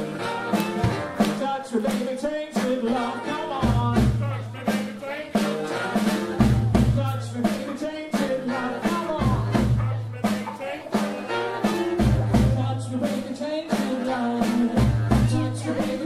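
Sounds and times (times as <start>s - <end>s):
drum kit steady beat: 0.0s - 16.0s
woman singing lead: 2.6s - 16.0s
heavy bass notes: 2.9s - 13.4s.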